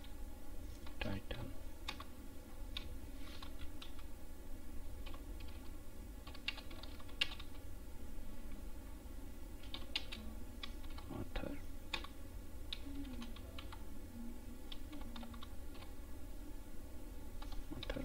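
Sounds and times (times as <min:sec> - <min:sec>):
low steady hum: 0:00.0 - 0:18.0
keyboard typing: 0:01.8 - 0:02.1, 0:02.7 - 0:04.1, 0:05.0 - 0:07.6, 0:09.6 - 0:11.1, 0:11.9 - 0:13.8, 0:14.7 - 0:15.9, 0:17.4 - 0:18.0.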